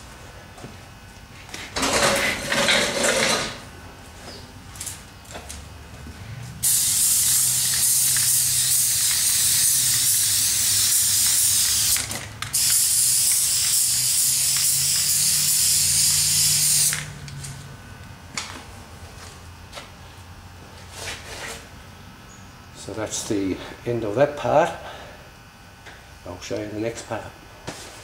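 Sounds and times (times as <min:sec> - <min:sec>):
spray paint hissing: 0:06.6 - 0:17.1.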